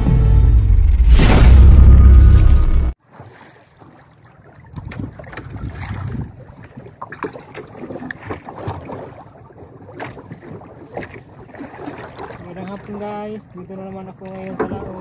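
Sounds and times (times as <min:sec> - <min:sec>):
waves slapping boat hull: 0:03.0 - 0:15.0
wind on microphone: 0:04.7 - 0:06.8.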